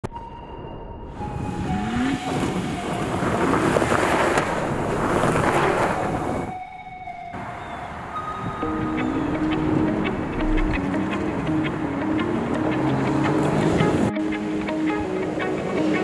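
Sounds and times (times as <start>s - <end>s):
pickup trucks accelerating past: 1.2s - 6.5s, 7.3s - 16.0s
rush of tyres and flung dirt: 1.4s - 6.5s.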